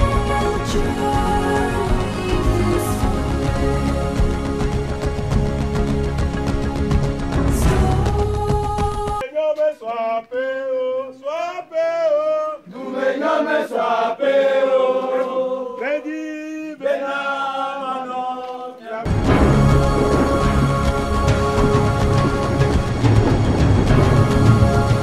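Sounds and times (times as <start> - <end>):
group singing a chant: 0.0 - 4.7, 7.5 - 23.0, 23.9 - 25.0
backing music: 0.0 - 9.3, 19.0 - 25.0.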